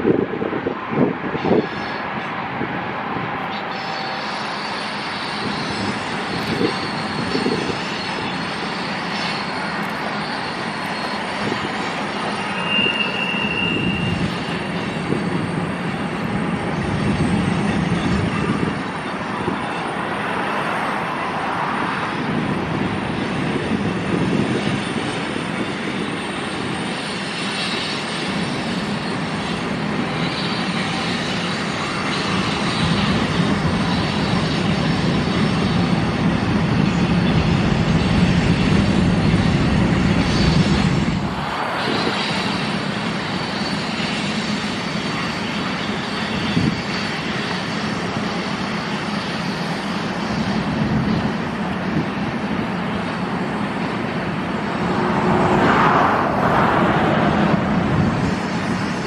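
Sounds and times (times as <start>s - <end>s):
diesel locomotive drone: 0.0s - 59.0s
train wheels rumbling: 0.0s - 59.0s
high wheel squeal: 0.6s - 59.0s.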